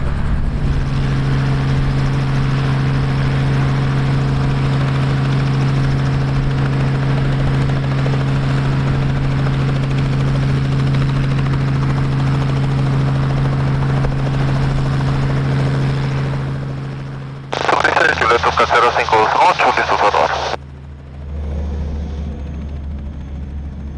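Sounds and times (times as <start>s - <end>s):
jet engines running: 17.6s - 20.6s.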